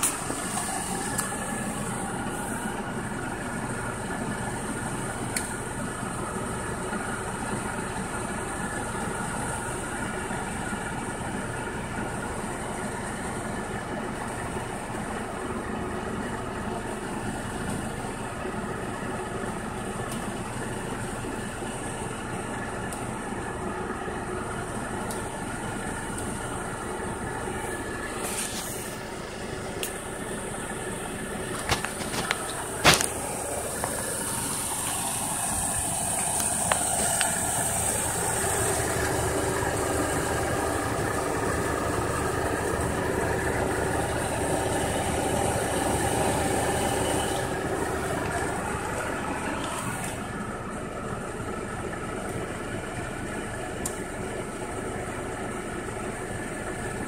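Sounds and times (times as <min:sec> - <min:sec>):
car engine idling: 0:00.0 - 0:57.0
sharp clicks and knocks: 0:31.5 - 0:34.0.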